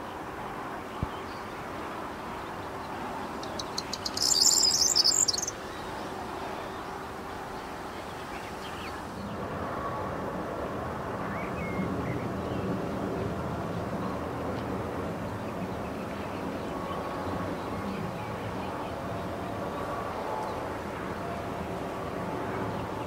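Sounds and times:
bird ticks and jangling trill: 0:03.4 - 0:05.5.

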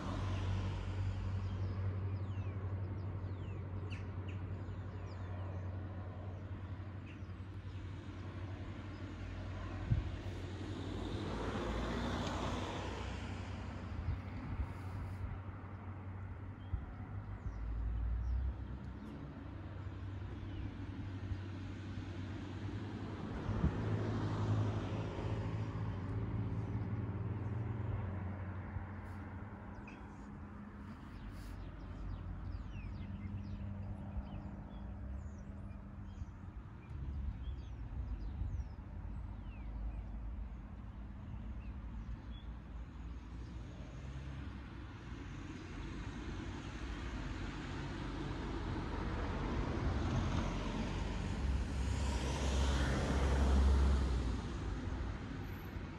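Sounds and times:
distant traffic hum: 0:00.0 - 0:55.9
car passing: 0:07.8 - 0:16.4, 0:17.9 - 0:39.8, 0:43.4 - 0:55.9.

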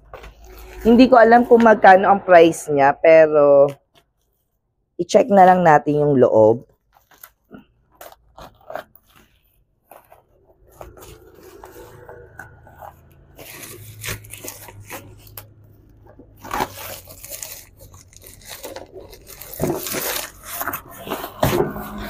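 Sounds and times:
plastic wrapping crinkling and tearing: 0:06.7 - 0:22.0
scissors cutting plastic: 0:06.9 - 0:09.4, 0:10.0 - 0:22.0.

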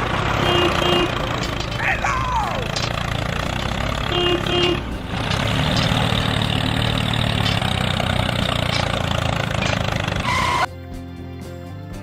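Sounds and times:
tractor engine running: 0:00.0 - 0:10.7.

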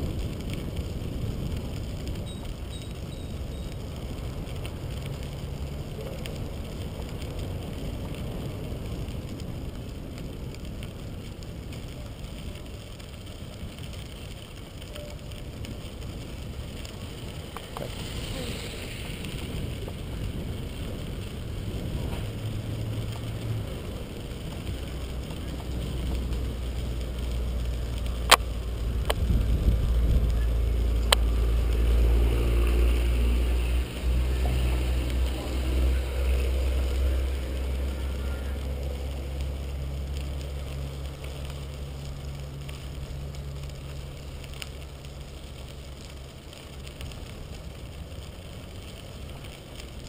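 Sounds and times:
wind noise on microphone: 0:00.0 - 0:04.9, 0:14.9 - 0:26.7, 0:27.8 - 0:35.7
bicycle tyres rolling on gravel: 0:00.0 - 0:50.0.

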